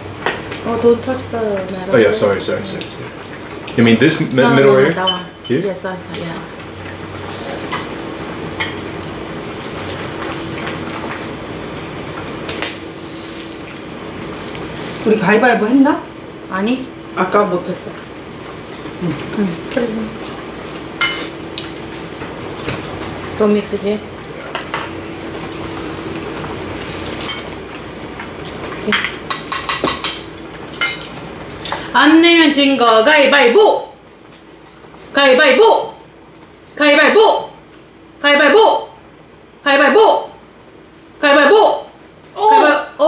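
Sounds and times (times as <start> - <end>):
steady background hum: 0.0 - 43.0
utensils clinking against bowls: 4.6 - 5.6, 28.7 - 31.9.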